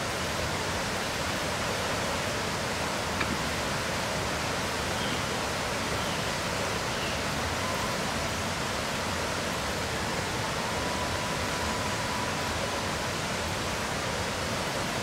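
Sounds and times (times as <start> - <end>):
rushing water: 0.0 - 15.0.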